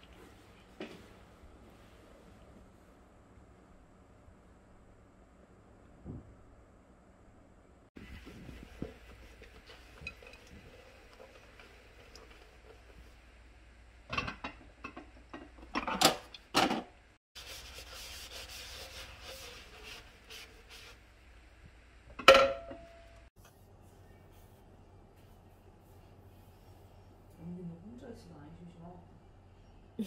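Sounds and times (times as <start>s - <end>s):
sponge scrubbing dishes: 8.0s - 13.3s, 17.4s - 21.1s
dishes clattering: 14.1s - 16.8s, 22.1s - 22.9s.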